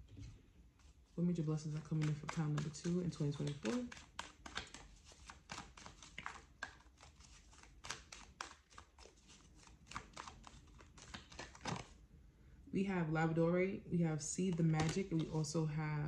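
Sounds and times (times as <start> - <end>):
cards being shuffled: 1.6 - 12.0, 14.5 - 15.4.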